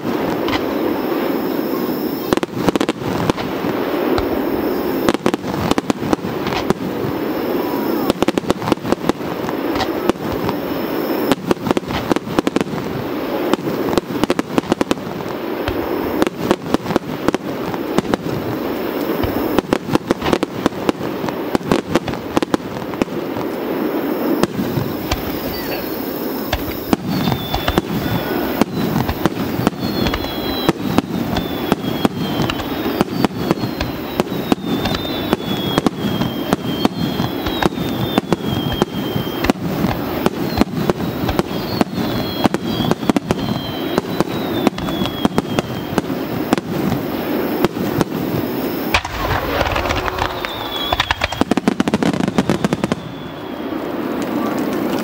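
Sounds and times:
firework whistles falling: 0.0 - 12.6, 13.4 - 21.0, 21.6 - 54.8
firework bangs: 0.0 - 55.0.

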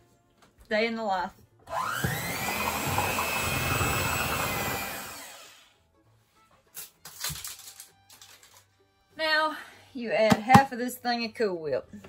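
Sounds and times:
electric hand mixer whirring: 1.7 - 5.7.

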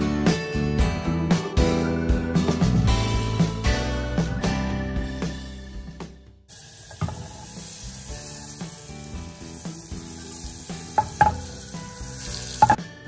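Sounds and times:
butter sizzling in a pan: 6.5 - 12.8.

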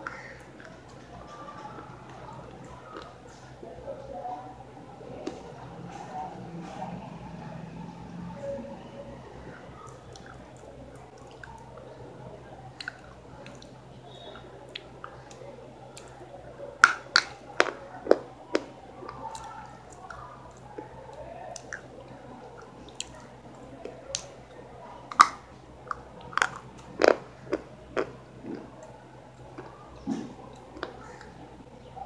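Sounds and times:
low steady hum: 0.0 - 32.0
person chewing food: 9.9 - 11.7, 25.1 - 31.4.

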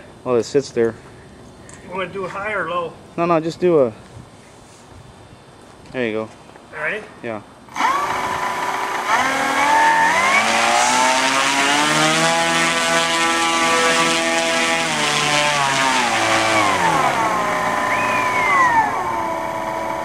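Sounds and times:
electric model plane motor whine: 7.7 - 20.0.

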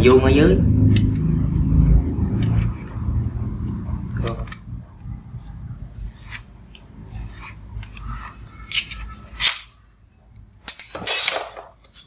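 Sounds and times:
pen scratching on cardboard: 5.8 - 8.4.

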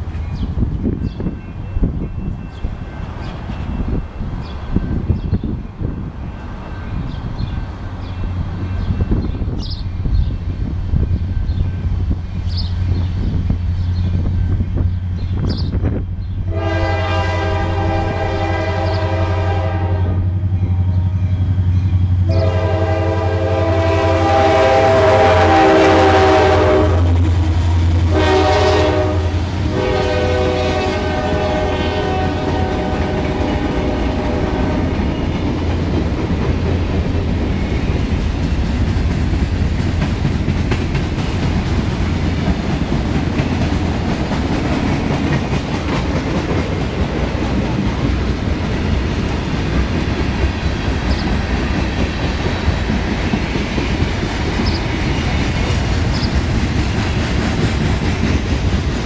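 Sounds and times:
low drone of locomotive engines: 0.0 - 59.0
locomotive air horn blasts: 16.5 - 21.4, 22.3 - 34.9.

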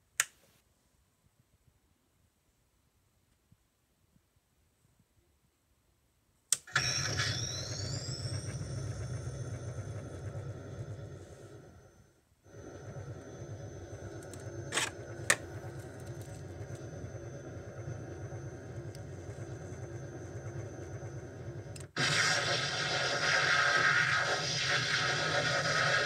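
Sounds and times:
sharp clicks: 0.2 - 0.4
electronic idle hum: 6.7 - 26.0
loud hissing blast: 12.5 - 26.0.

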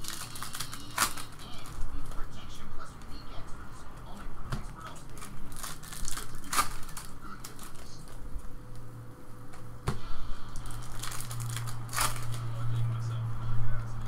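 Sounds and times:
trading cards flipped through: 0.0 - 2.2, 5.0 - 8.2, 10.5 - 12.6.

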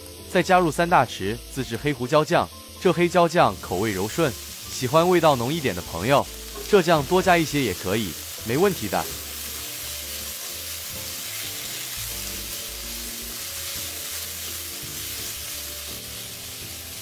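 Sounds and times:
food sizzling in a wok: 0.0 - 17.0
soft background music: 0.0 - 17.0
spatula stirring: 8.9 - 16.4.

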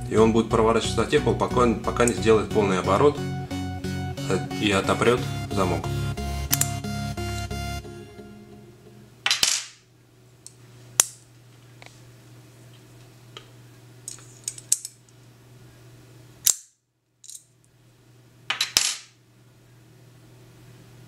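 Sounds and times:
padlock metallic clicks: 6.5 - 6.8.

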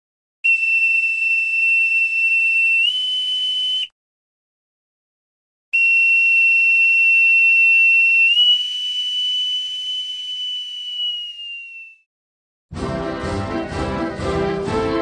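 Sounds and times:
boatswain's pipe whistle: 0.4 - 3.9, 5.8 - 12.0.

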